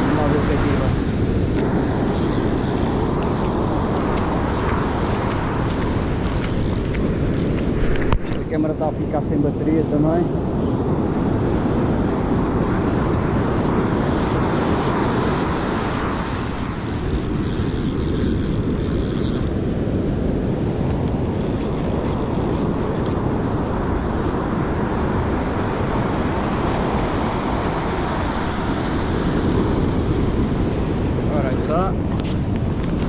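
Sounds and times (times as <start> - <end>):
wind buffeting microphone: 0.0 - 33.0
high rattling whir: 1.6 - 7.6, 9.3 - 10.9, 15.8 - 19.6, 21.4 - 23.2.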